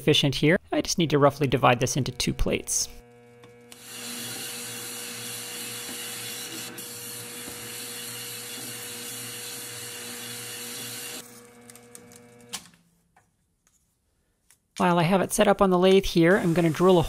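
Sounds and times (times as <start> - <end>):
lathe motor hum: 1.3 - 12.5.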